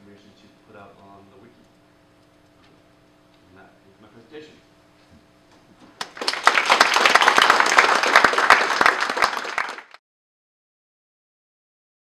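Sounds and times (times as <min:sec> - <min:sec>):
audience applauding: 0:06.0 - 0:10.0.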